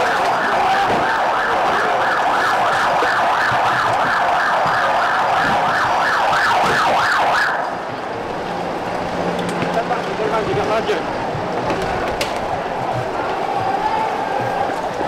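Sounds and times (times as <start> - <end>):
police siren yelp: 0.0 - 7.9
police siren wail: 0.0 - 9.8, 11.3 - 15.0.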